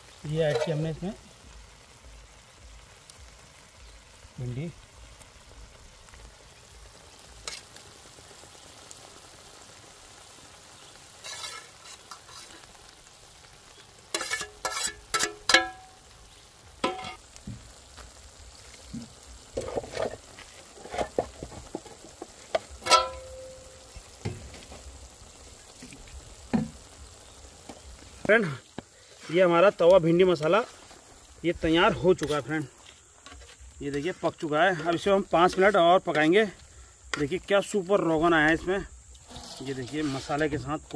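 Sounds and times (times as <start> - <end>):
masala sizzling on griddle: 0.0 - 40.9
metal spatula clanking and scraping: 0.4 - 0.9, 7.4 - 7.7, 11.2 - 12.7, 14.1 - 15.9, 16.8 - 17.2, 22.8 - 23.6, 32.2 - 36.3, 39.2 - 40.7.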